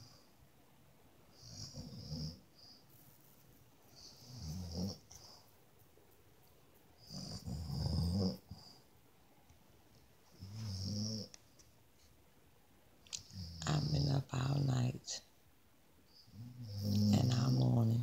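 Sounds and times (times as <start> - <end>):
woman snoring: 7.0 - 8.5, 10.4 - 11.3, 16.3 - 17.7.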